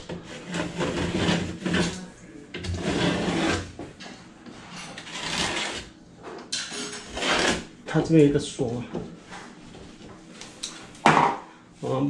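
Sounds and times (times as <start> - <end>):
knife scraping paint: 4.9 - 5.9, 7.1 - 7.6.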